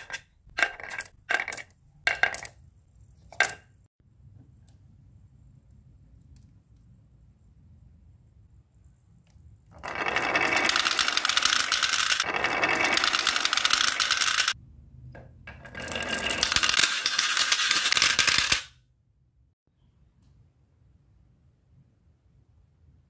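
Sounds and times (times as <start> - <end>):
marbles rolling down wooden run: 9.8 - 14.6, 15.5 - 18.7.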